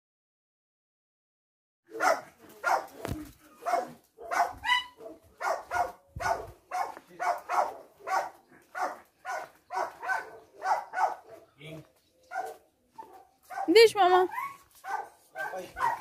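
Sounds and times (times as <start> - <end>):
small dog barking: 1.9 - 11.5, 12.3 - 16.0.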